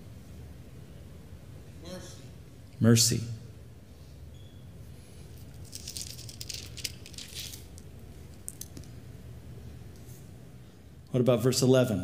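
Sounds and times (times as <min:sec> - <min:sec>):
faint low hum: 0:00.0 - 0:12.0
thin pages rustling: 0:05.4 - 0:08.9.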